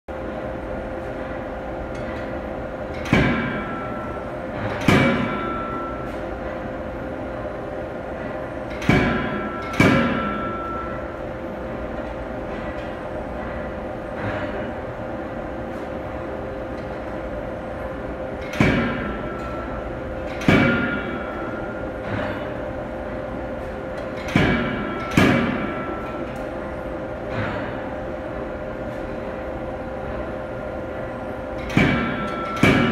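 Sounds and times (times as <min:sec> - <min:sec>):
machine hum: 0:00.1 - 0:32.9
forging hammer striking metal: 0:02.9 - 0:06.1, 0:08.7 - 0:11.2, 0:18.4 - 0:22.4, 0:24.1 - 0:26.3, 0:31.6 - 0:32.9.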